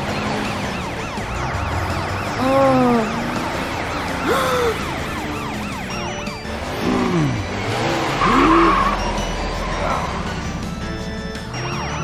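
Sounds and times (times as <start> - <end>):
yelping emergency siren: 0.0 - 7.6, 8.2 - 9.2
swooping vehicle sounds: 0.0 - 12.0.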